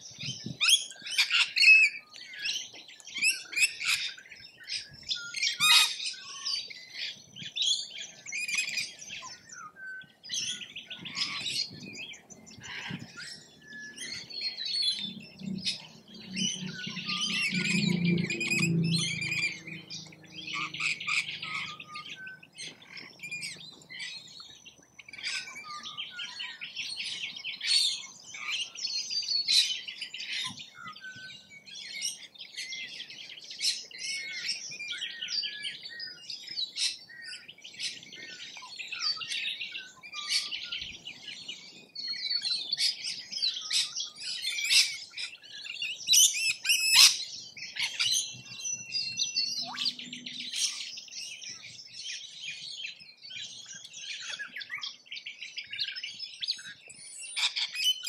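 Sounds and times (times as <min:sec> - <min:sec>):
parrots chattering and squawking: 0:12.6 - 0:24.1, 0:46.2 - 0:47.2, 0:57.4 - 0:58.0.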